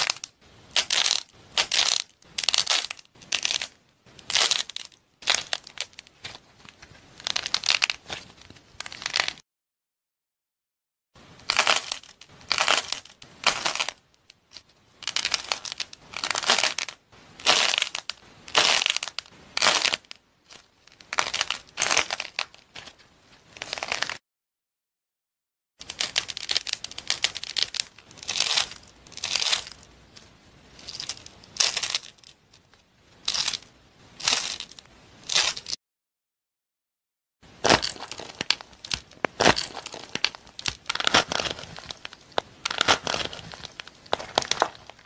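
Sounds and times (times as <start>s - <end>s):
dried foam crunching: 37.6s - 45.0s.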